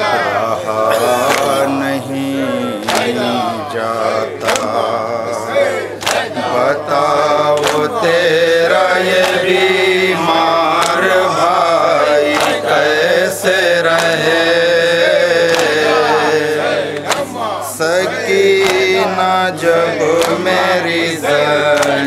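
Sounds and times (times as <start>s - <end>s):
men chanting a lament: 0.0s - 22.0s
hands slapping chests: 1.1s - 1.6s, 2.8s - 3.2s, 4.4s - 4.8s, 6.0s - 6.3s, 7.6s - 7.9s, 10.8s - 11.0s, 12.3s - 12.6s, 13.9s - 14.2s, 15.5s - 15.8s, 17.0s - 17.4s, 18.6s - 19.0s, 20.2s - 20.4s, 21.7s - 22.0s.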